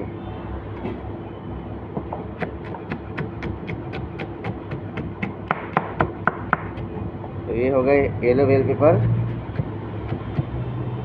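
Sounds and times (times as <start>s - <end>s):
steady background hum: 0.0s - 11.0s
knife chopping on cutting board: 2.4s - 7.0s, 9.1s - 10.6s.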